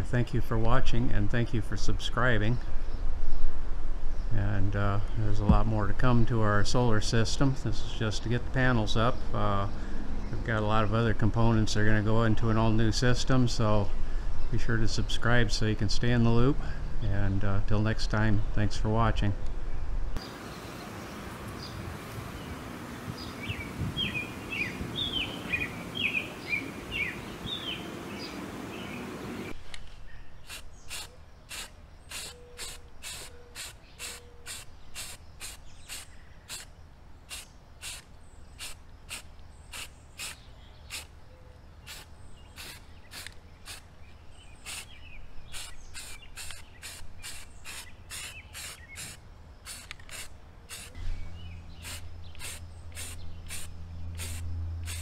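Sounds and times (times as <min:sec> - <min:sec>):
outdoor background noise: 0:00.0 - 0:55.0
birds chirping: 0:16.9 - 0:55.0.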